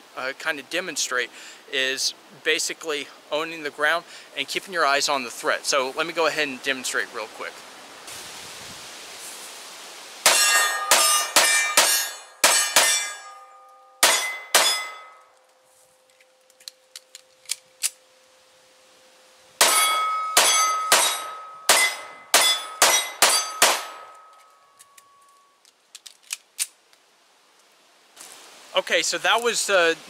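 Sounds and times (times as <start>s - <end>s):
steady ringing tone: 10.3s - 16.4s, 18.2s - 25.4s
pistol reloading clicks: 16.5s - 18.0s, 24.4s - 26.8s
pistol shots: 19.6s - 24.1s.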